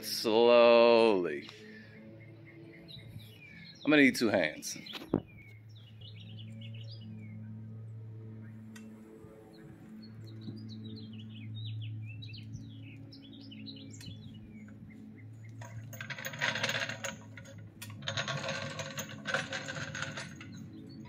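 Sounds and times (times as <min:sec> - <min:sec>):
birds chirping: 0:00.0 - 0:21.0
floor jack casters rattling on concrete: 0:15.5 - 0:21.0.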